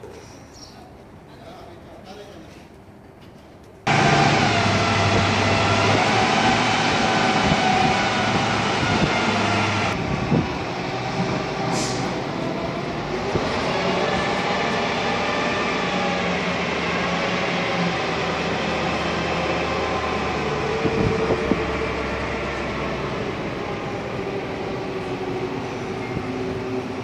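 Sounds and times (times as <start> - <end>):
diesel machinery running: 3.9 - 16.9.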